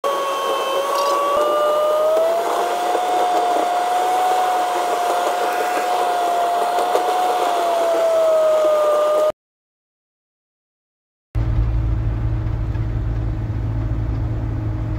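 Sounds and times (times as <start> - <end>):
vehicle whine: 0.0 - 9.3, 11.4 - 14.9
vehicle interior road rush: 11.4 - 14.9.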